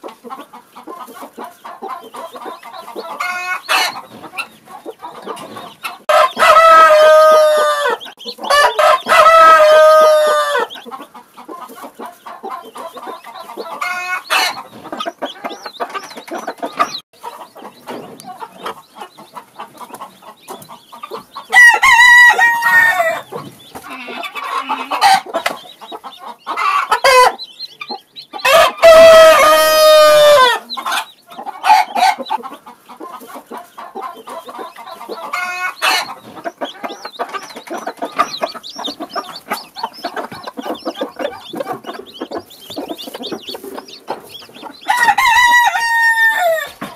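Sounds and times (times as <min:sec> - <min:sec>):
chickens clucking: 0:00.0 - 0:46.9
chicks peeping: 0:00.0 - 0:46.9
chicken long drawn-out calls: 0:06.0 - 0:10.7, 0:21.5 - 0:25.3, 0:28.4 - 0:32.3, 0:44.8 - 0:46.9.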